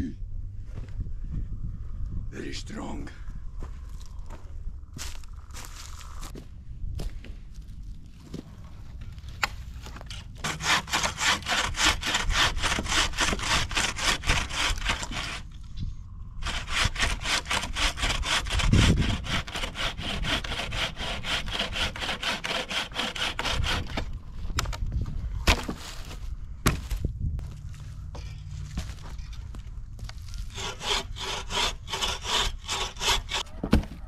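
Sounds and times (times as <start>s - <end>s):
saw cutting through log: 10.4s - 15.6s, 16.4s - 24.1s, 30.4s - 33.4s.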